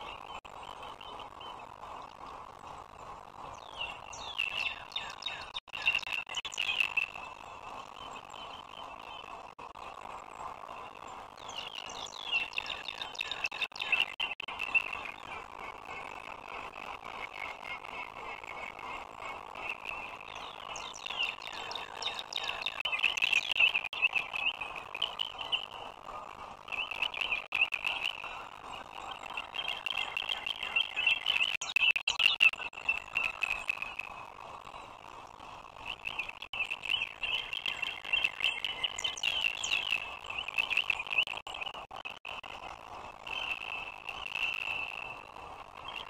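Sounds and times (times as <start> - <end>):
high rapid chirping trills: 35.8 - 41.5.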